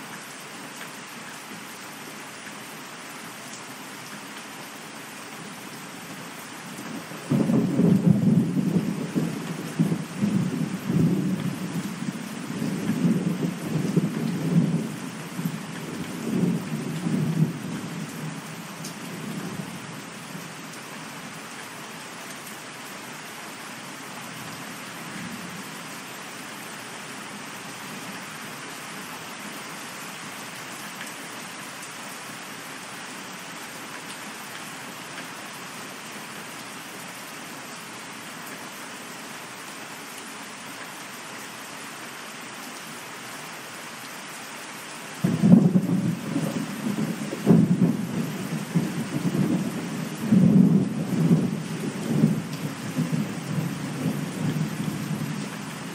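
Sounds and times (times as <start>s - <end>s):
steady rain falling: 0.0s - 55.9s
thunder rumbling: 7.3s - 11.9s, 45.2s - 55.3s.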